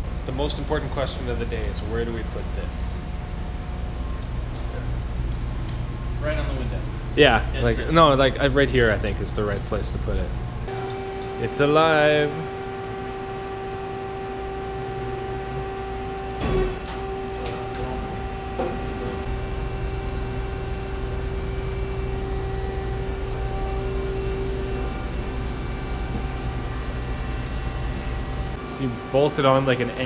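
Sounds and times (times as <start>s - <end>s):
lathe humming at idle: 6.0s - 30.0s.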